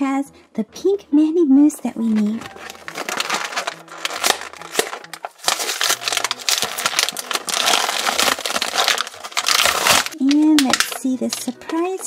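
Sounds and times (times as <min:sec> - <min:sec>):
plastic packaging crinkling: 0:02.0 - 0:12.0.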